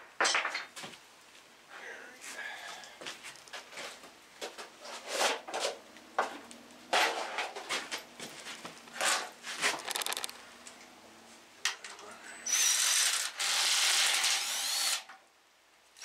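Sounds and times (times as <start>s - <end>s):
tools scraping and rattling: 6.9s - 10.4s
rapid clicks: 9.7s - 10.4s.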